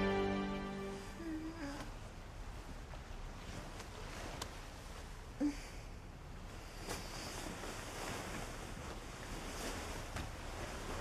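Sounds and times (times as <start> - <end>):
woman humming low: 0.8 - 1.9.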